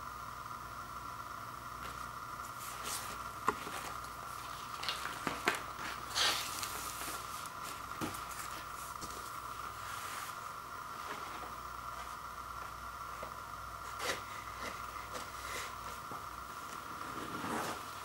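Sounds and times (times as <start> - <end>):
steady background hiss: 0.0 - 18.0
paper sleeves rustling: 1.9 - 12.2, 13.8 - 18.0.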